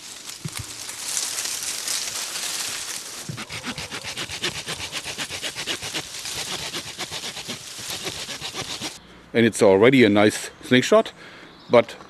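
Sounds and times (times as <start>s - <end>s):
saw cutting through branch: 3.2s - 9.0s.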